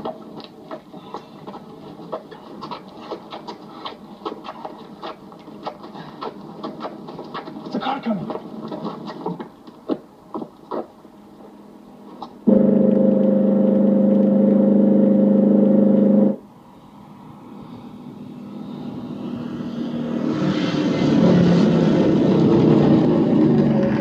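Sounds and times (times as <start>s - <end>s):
loud droning tone: 12.4s - 16.5s
car engine passing at speed: 12.5s - 24.0s.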